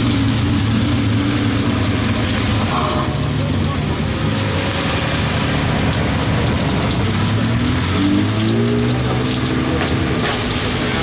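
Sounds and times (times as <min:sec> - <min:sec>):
heavy rain on tarmac: 0:00.0 - 0:11.0.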